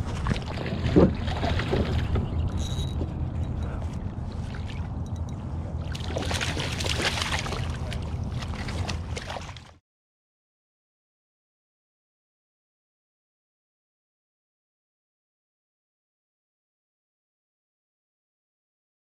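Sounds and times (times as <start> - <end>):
low rumble: 0.0 - 9.5
fish splashing at the surface: 5.8 - 9.8.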